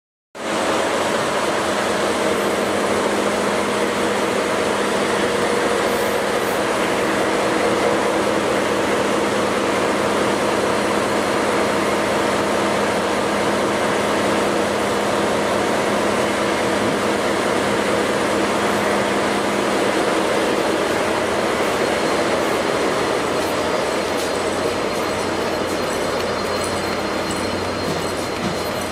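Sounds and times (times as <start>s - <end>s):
train equipment hum and hiss: 0.4s - 28.9s
constant tones: 21.7s - 28.9s.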